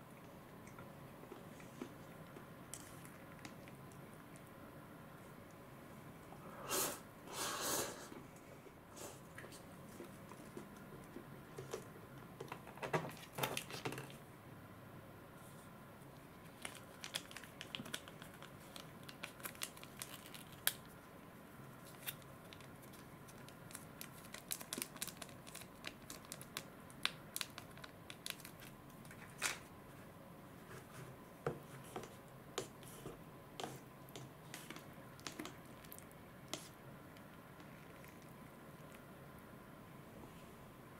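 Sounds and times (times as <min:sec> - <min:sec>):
sachet tearing and rustling: 0:16.5 - 0:20.9, 0:21.8 - 0:28.8.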